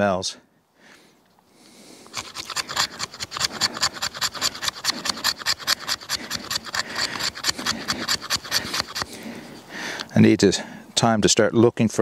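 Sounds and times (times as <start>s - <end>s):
knife scraping wood: 2.1s - 9.7s.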